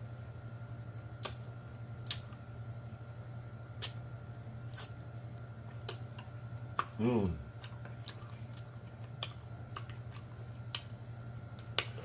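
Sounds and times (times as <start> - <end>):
steady low hum: 0.0 - 12.0
wet lip smacks and mouth clicks: 1.2 - 1.4, 2.0 - 2.4, 4.8 - 7.0, 7.6 - 12.0.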